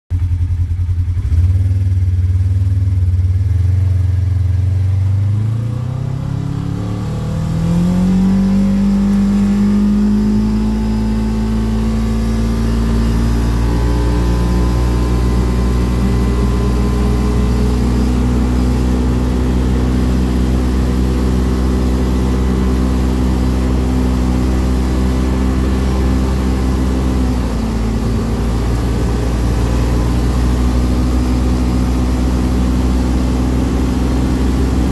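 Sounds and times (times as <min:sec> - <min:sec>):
tyres on gravel road: 0:00.1 - 0:34.9
vehicle engine accelerating: 0:00.2 - 0:34.9.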